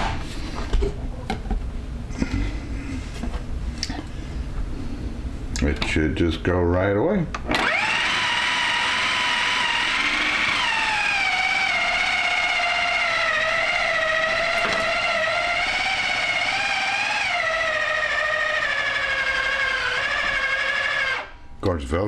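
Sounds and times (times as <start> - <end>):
food processor motor whining: 7.4 - 21.4.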